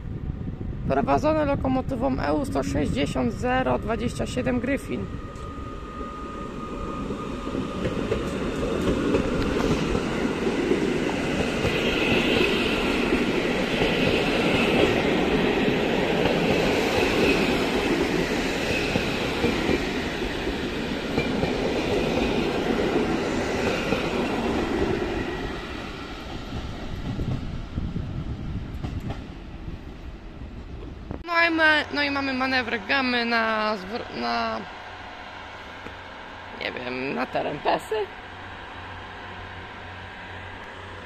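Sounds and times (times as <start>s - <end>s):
train wheels clattering over track: 7.4s - 27.6s.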